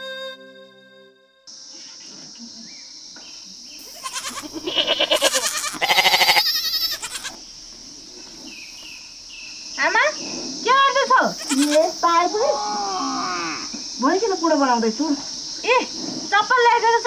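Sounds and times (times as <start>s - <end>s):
animal bleating: 3.8s - 7.4s, 11.4s - 11.9s.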